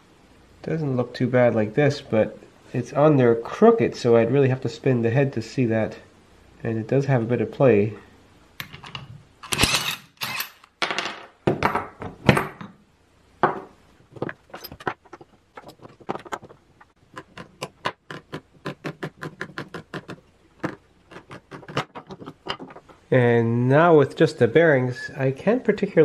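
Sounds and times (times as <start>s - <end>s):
metal parts knocking and clattering: 8.6s - 12.8s, 13.5s - 18.0s, 21.2s - 23.0s.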